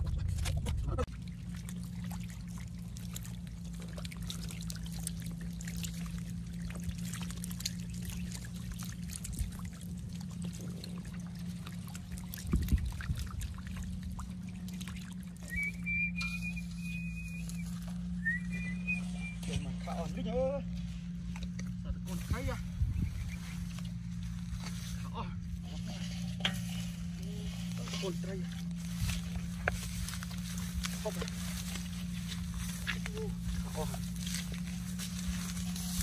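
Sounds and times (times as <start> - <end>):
fish splashing in muddy water: 0.0 - 19.7, 22.9 - 36.0
steady low hum: 0.0 - 36.0
high whistle: 15.5 - 19.7.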